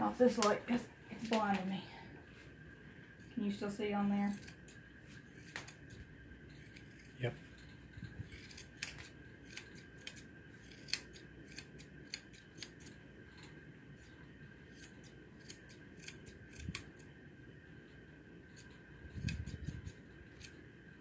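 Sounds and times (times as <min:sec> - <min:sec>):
grooming shears snipping: 0:04.2 - 0:06.0, 0:06.6 - 0:07.4, 0:08.0 - 0:13.0, 0:14.7 - 0:17.1, 0:18.6 - 0:20.6.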